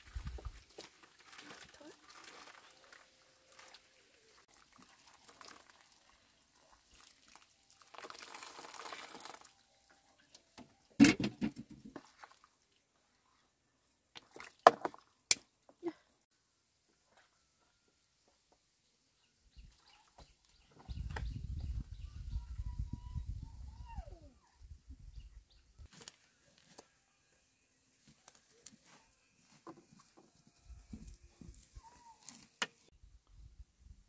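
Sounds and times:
faint handling sounds: 25.9 - 32.9.

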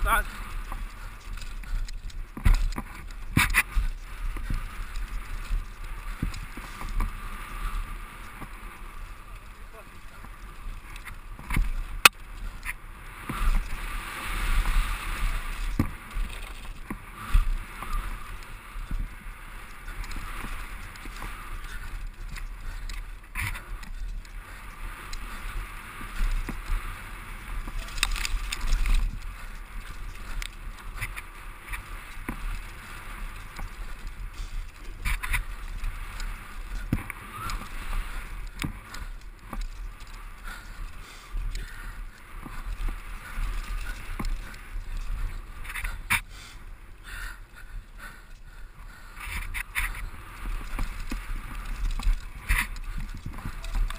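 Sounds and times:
bike rattling: 0.0 - 53.9
bike tyres rolling over dirt: 0.0 - 53.9
wind on microphone: 47.8 - 53.9.

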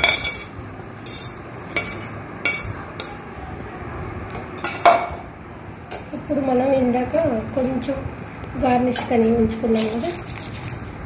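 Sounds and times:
spoon scraping metal bowls: 0.0 - 3.2.

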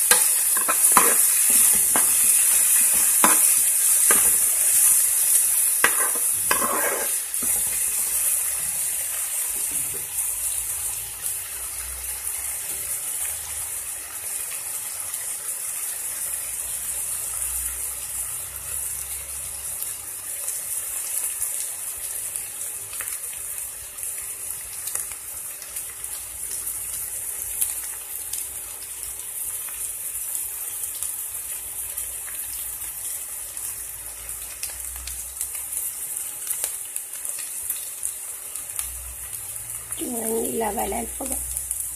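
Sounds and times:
spoon scraping a pan: 0.0 - 5.0, 5.8 - 8.2
onions sizzling in hot oil: 0.0 - 41.9.

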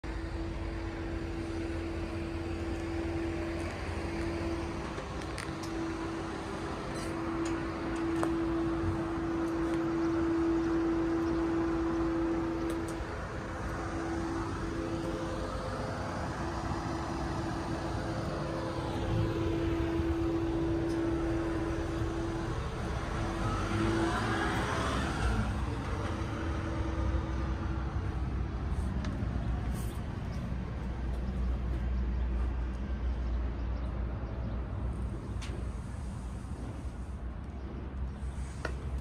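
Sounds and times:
vehicles passing: 0.0 - 39.0.

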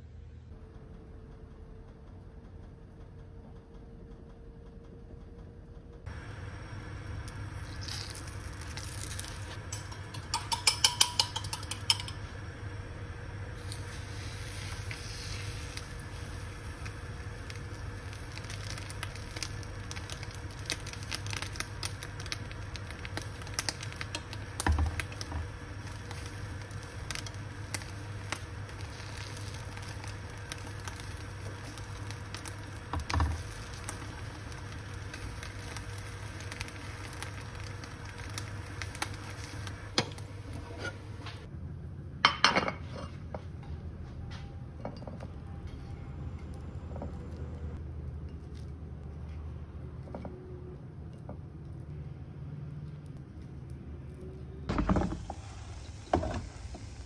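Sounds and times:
steady low hum: 0.0 - 57.0
food sizzling in a pan: 7.4 - 12.0, 13.5 - 41.1, 54.9 - 57.0
ceramic plate clinking on countertop: 9.8 - 12.2.

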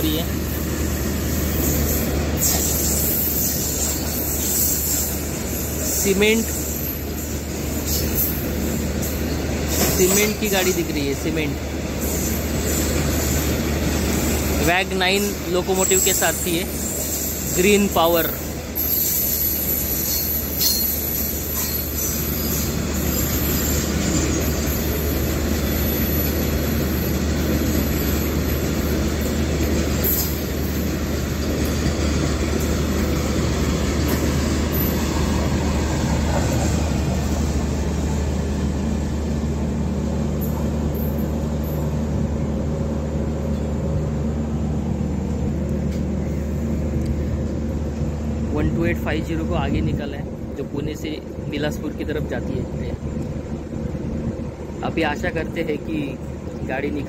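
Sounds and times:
freight train wheels rumbling on rail: 0.0 - 57.0.

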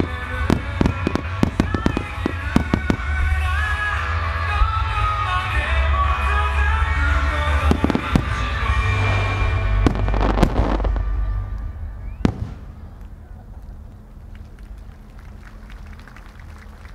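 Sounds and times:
fireworks bangs: 0.0 - 3.7, 7.5 - 11.4, 12.1 - 13.4
background music: 0.0 - 13.3.

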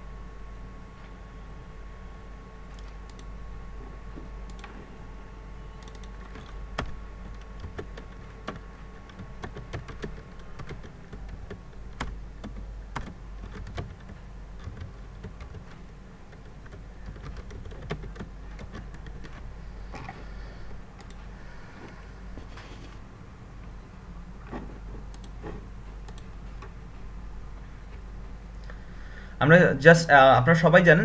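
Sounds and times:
low steady hum: 0.0 - 31.0
computer keyboard typing: 5.8 - 20.1, 21.0 - 21.2.

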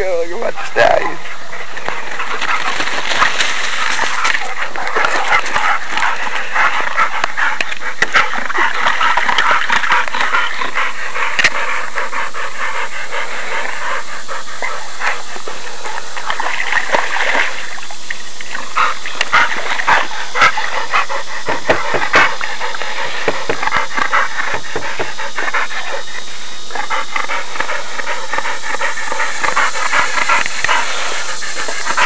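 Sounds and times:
dog panting: 0.0 - 32.0
dog splashing in water: 2.2 - 7.0.

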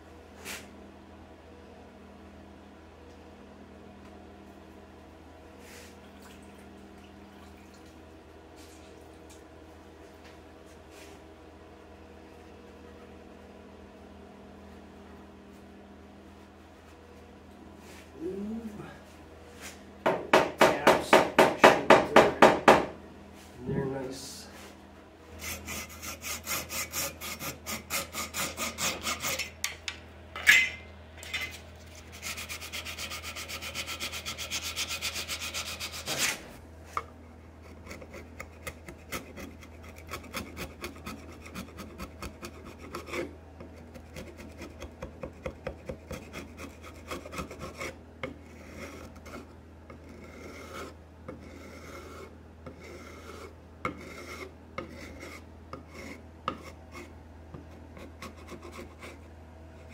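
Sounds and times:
knock on wood: 20.0 - 23.0
chisel scraping wood: 25.4 - 29.5, 31.8 - 36.5, 37.6 - 59.9.

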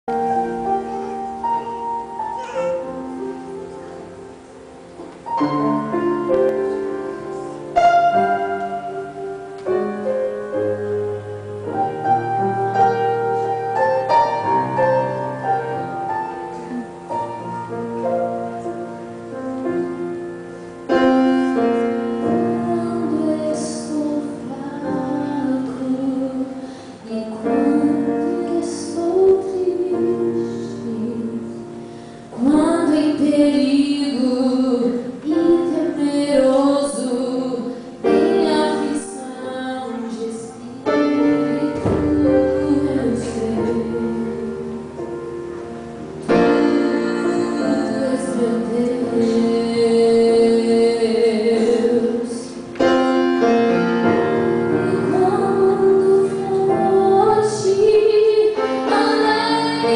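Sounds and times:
piano chords: 0.0 - 59.9
live band playing slow song: 0.1 - 59.9
woman singing into microphone: 21.5 - 45.1, 46.3 - 52.8, 54.6 - 59.9.

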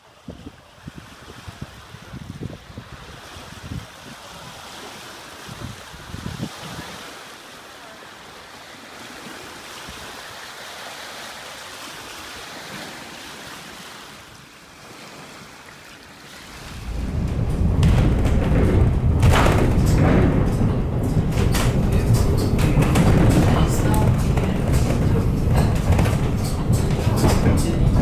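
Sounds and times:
waves lapping at shore: 0.0 - 28.0
wind buffeting microphone: 0.2 - 7.1, 16.4 - 28.0.

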